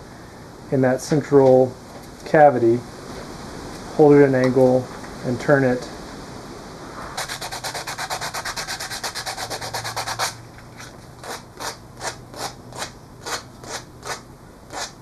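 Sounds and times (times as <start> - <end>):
sandpaper rubbing on wood: 7.2 - 15.0.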